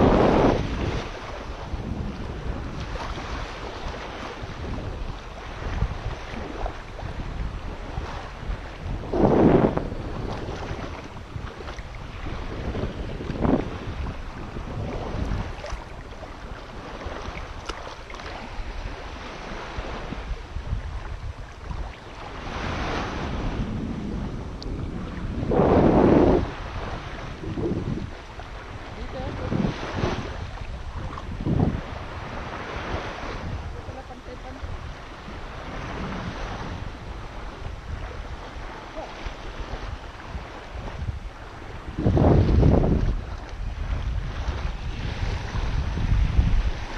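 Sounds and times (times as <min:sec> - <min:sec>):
small waves lapping: 0:00.0 - 0:23.6, 0:24.4 - 0:46.9
wind rumble on microphone: 0:00.0 - 0:46.9
water sloshing around legs: 0:15.4 - 0:18.6.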